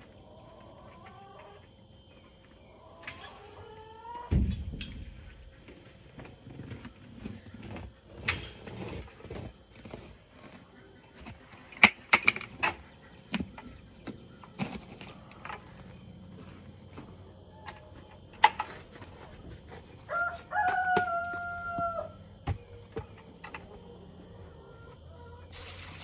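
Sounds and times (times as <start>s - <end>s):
rooster crowing: 20.0s - 22.5s.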